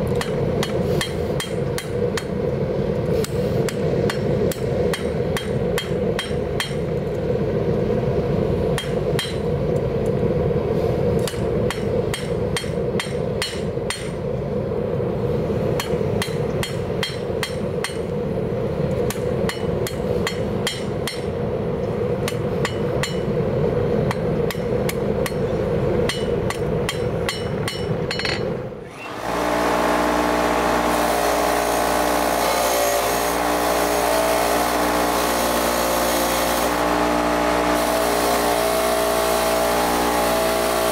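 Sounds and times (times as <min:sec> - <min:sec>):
hammer striking hot metal on anvil: 0:00.1 - 0:02.4, 0:03.2 - 0:07.1, 0:08.8 - 0:09.5, 0:11.2 - 0:14.2, 0:15.8 - 0:18.1, 0:19.1 - 0:21.4, 0:22.2 - 0:23.3, 0:24.0 - 0:28.6
bench grinder grinding metal: 0:28.9 - 0:40.9.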